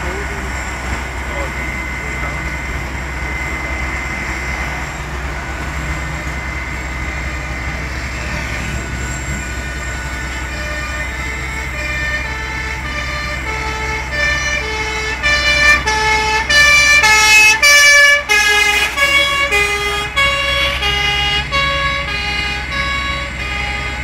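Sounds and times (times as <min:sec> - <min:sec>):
two-tone siren: 0:00.0 - 0:24.0.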